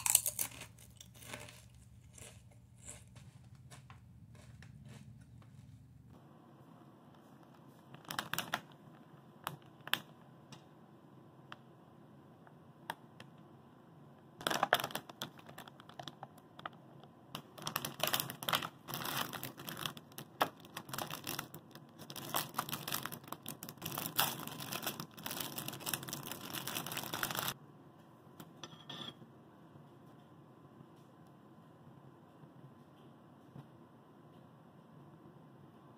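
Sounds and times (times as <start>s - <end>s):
plastic wrapping crinkling: 14.4s - 16.4s, 17.4s - 27.6s.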